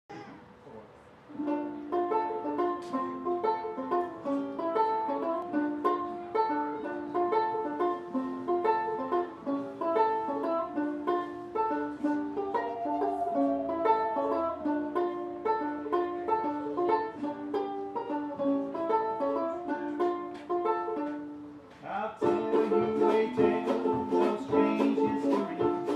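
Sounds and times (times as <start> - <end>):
plucked strings: 1.3 - 21.6, 22.2 - 25.9
banjo picking: 1.3 - 25.9
wavering held tone: 12.4 - 15.7.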